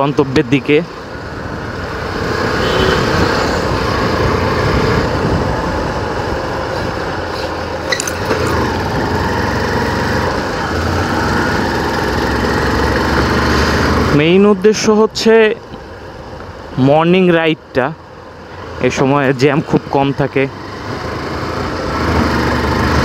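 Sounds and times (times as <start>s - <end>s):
road noise: 0.0s - 23.0s
motorcycle engine: 1.2s - 14.4s, 20.3s - 23.0s.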